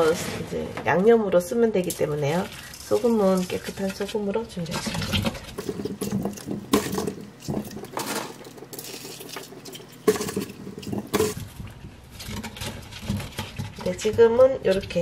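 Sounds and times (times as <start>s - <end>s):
salt pattering and hissing: 1.9s - 4.2s.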